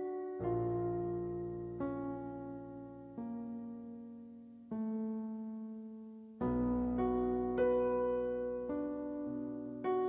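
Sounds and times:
slow keyboard notes: 0.0 - 10.0.

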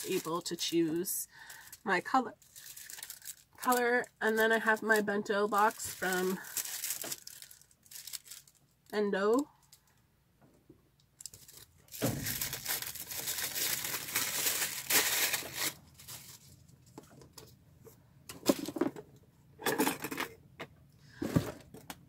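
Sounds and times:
plastic wrapping crinkling and tearing: 0.0 - 8.9, 11.2 - 16.6.

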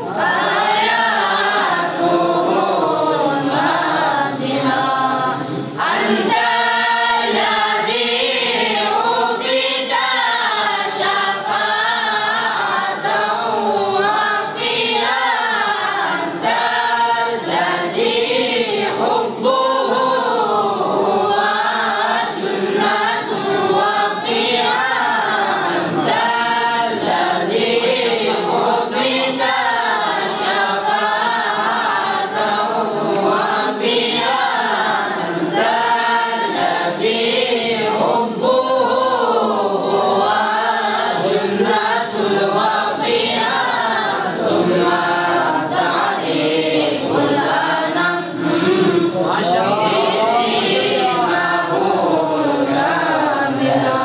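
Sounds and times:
boys singing without instruments: 0.0 - 54.0.

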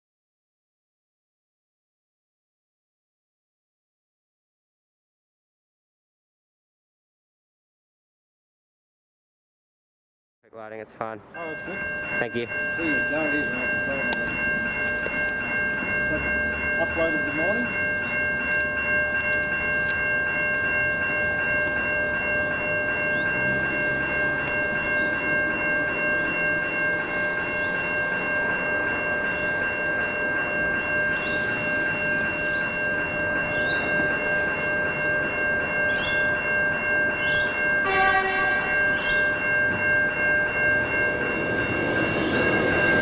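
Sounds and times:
electric train passing: 10.7 - 43.0
level crossing bell ringing: 11.0 - 43.0
train horn: 37.8 - 38.8.

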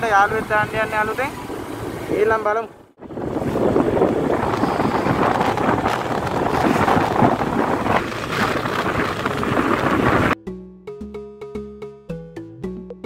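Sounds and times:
scooter engine and road noise: 0.0 - 10.4
wind buffeting microphone: 3.0 - 10.4.

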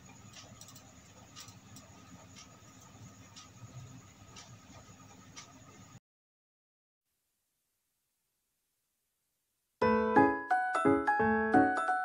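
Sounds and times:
soft scattered clicks: 0.0 - 6.0
steady low hiss: 0.0 - 6.0.

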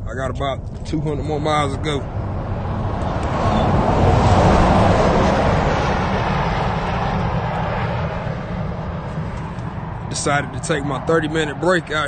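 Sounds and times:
steady low rumble: 0.0 - 12.0
vehicle passing on highway: 0.0 - 12.0.

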